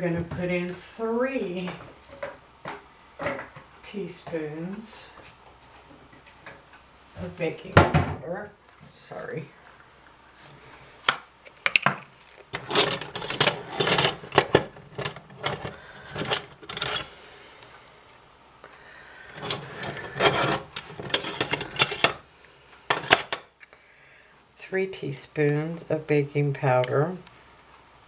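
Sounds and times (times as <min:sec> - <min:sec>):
metal spoon scraping in a can: 0:19.4 - 0:22.2.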